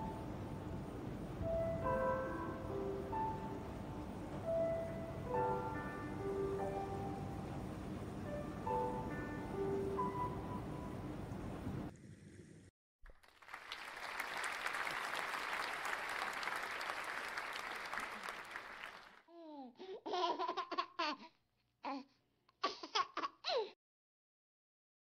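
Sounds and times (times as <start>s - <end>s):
clapping applause: 13.1s - 19.2s.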